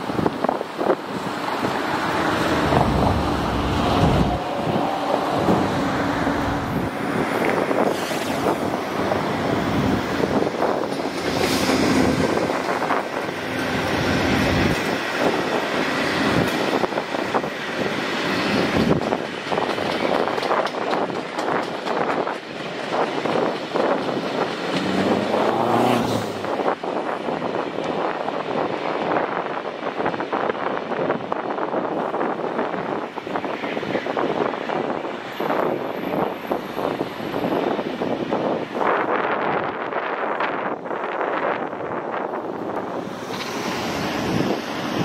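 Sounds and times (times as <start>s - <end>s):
diesel locomotive running: 0.0s - 25.5s
train wheels clicking over rails: 6.8s - 25.5s.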